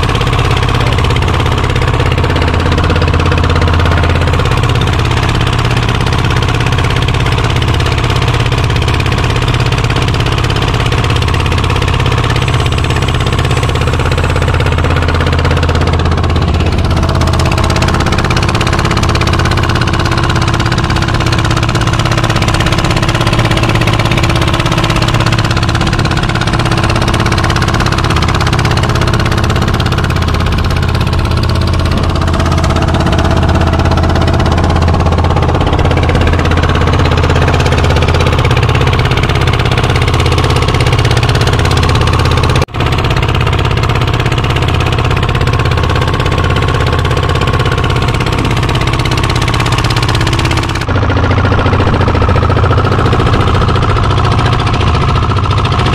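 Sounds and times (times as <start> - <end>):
boat engine running: 0.0 - 55.9.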